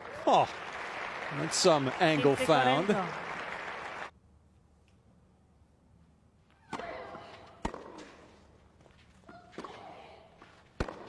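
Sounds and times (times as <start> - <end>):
tennis ball struck by racket: 6.7 - 8.4, 10.7 - 11.0.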